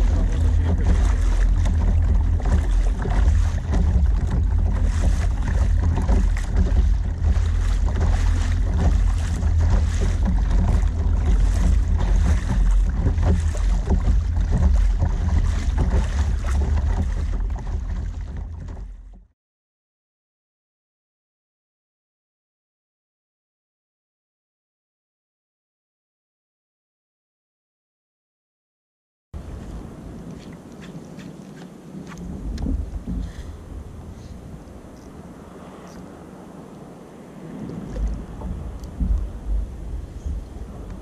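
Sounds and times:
wind buffeting microphone: 0.0s - 19.2s, 29.4s - 41.0s
water splashing along hull: 0.0s - 19.4s, 29.4s - 41.0s.

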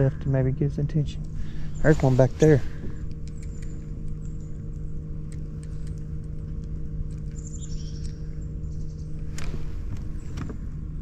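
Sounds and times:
small electric motor humming: 0.0s - 11.0s
high chirping bird call: 7.4s - 9.2s.

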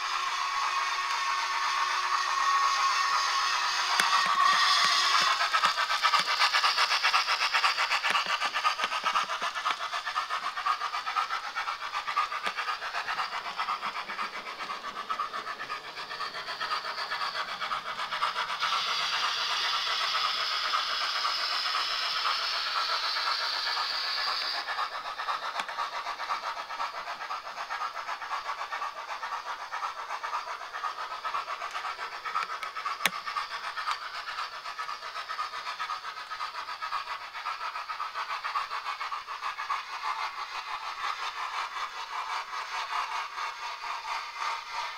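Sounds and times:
steam hissing: 0.0s - 44.9s
sharp click: 3.9s - 6.4s.

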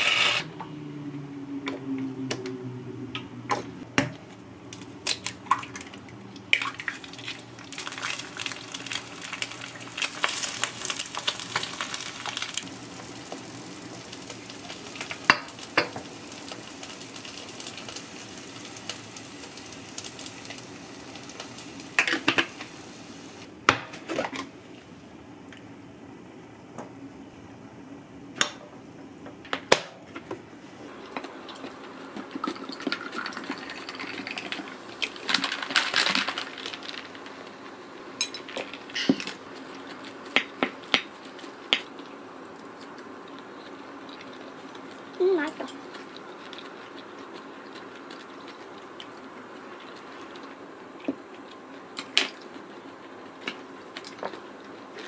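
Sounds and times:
dishes clinking: 38.2s - 39.2s.

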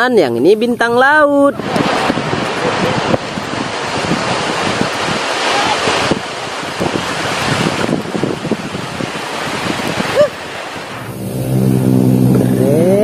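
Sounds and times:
surf: 0.0s - 13.0s
wind on microphone: 0.0s - 13.0s
low hum rising in pitch: 10.2s - 13.0s.

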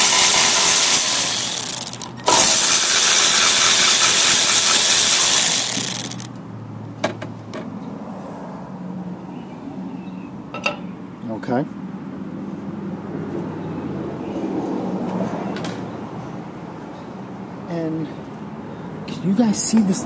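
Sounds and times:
cordless ratchet running: 0.0s - 6.3s.

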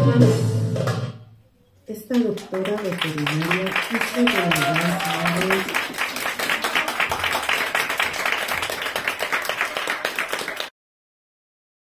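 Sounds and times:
audience applauding: 2.1s - 10.7s.

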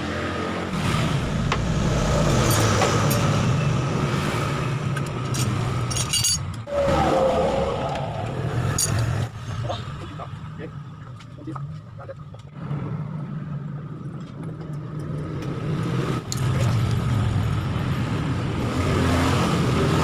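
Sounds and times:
engine rumbling: 0.0s - 20.0s
spanners clinking against metal: 5.4s - 6.6s, 8.8s - 9.1s.

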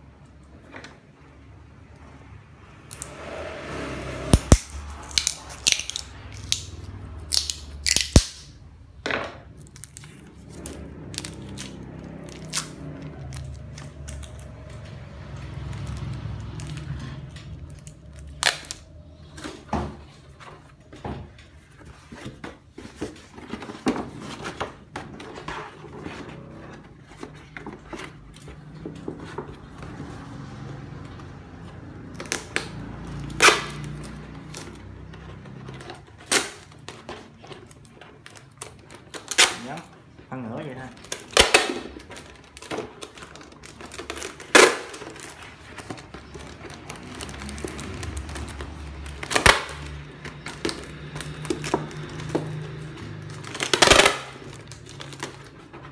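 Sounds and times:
packing tape tearing from roll: 4.3s - 8.6s, 9.6s - 19.4s, 32.1s - 40.2s, 40.9s - 55.9s
plastic crackling: 4.3s - 8.7s, 31.6s - 55.9s.

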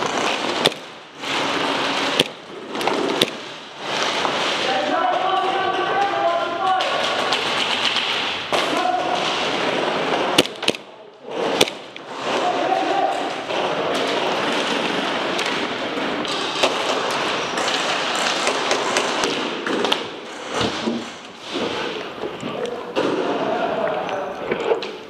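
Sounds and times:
sharp cracks and thuds: 0.0s - 4.9s, 6.7s - 12.5s, 13.1s - 21.8s.

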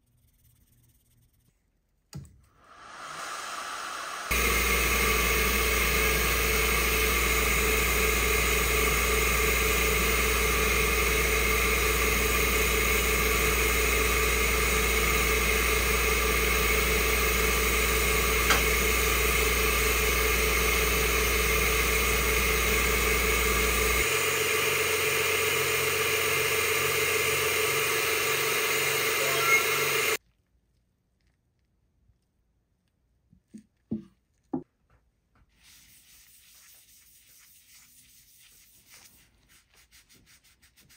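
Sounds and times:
laser engraver humming: 3.0s - 30.2s.

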